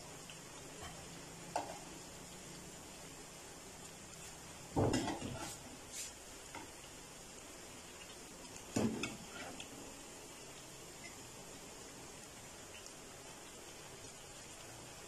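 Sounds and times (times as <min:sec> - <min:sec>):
meat sizzling in oil: 0:00.0 - 0:15.0
spatula scraping frying pan: 0:04.9 - 0:05.6, 0:08.9 - 0:09.6.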